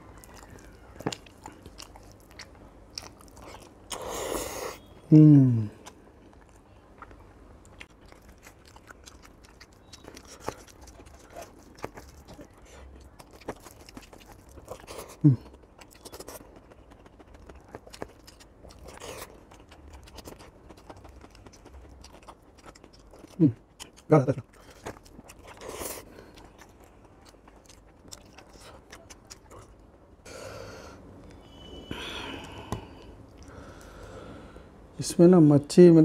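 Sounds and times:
chewing and wet clicks: 0:00.1 - 0:04.1, 0:05.8 - 0:30.0, 0:33.0 - 0:34.0.

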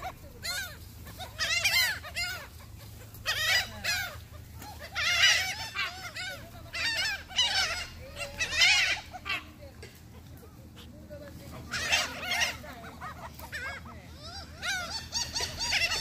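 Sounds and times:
gulls calling: 0:00.0 - 0:16.0.

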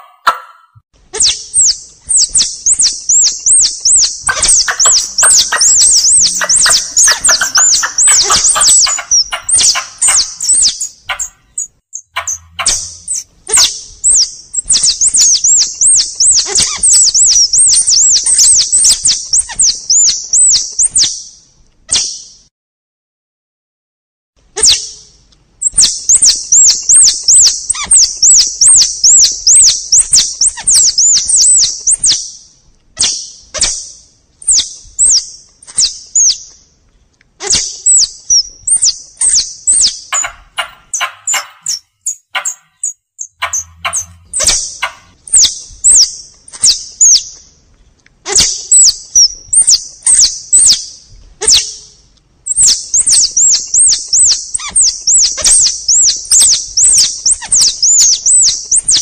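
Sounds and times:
squirrel high chirps: 0:00.0 - 0:22.3, 0:24.6 - 0:32.4, 0:33.0 - 0:36.6, 0:37.4 - 0:47.5, 0:48.2 - 0:59.0.

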